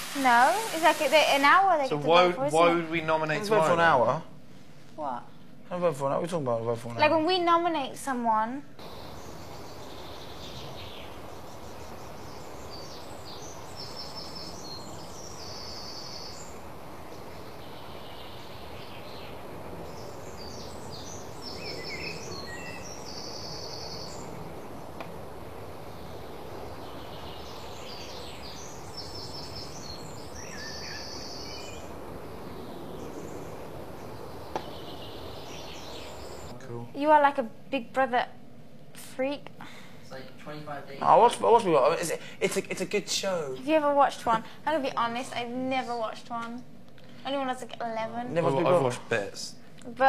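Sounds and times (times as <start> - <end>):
steady hiss: 0.0 - 37.2, 38.8 - 50.0
birds chirping and trilling: 8.8 - 37.4.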